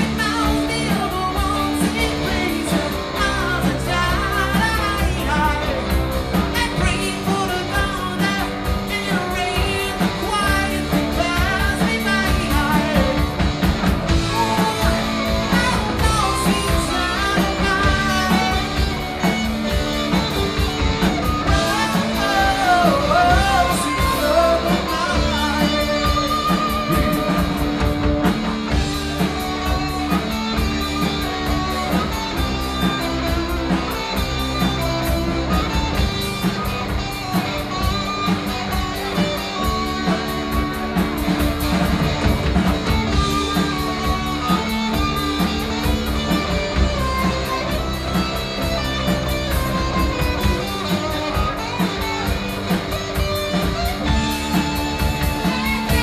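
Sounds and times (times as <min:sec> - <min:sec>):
man singing: 0:00.0 - 0:13.4, 0:14.3 - 0:19.3, 0:21.5 - 0:27.7
drum kit: 0:00.0 - 0:56.0
electric guitars: 0:00.0 - 0:56.0.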